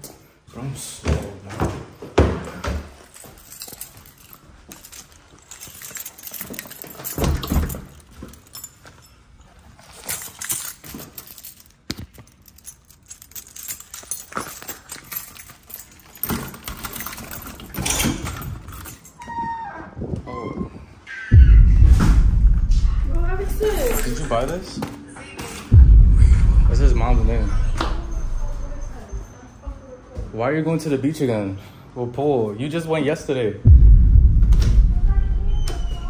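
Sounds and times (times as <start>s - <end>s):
keys jangling: 3.0s - 19.4s, 22.6s - 24.7s, 26.2s - 29.2s.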